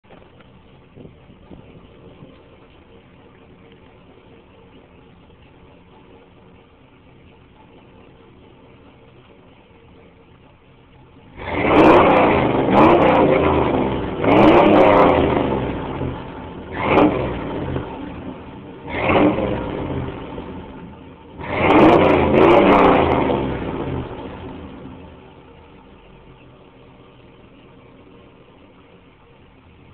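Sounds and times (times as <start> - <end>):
car engine idling and revving: 0.0 - 29.9.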